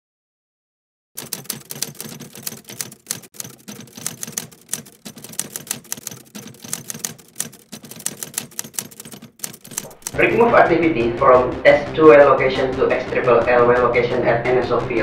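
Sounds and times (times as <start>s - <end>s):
typewriter keys clacking: 1.2s - 10.4s.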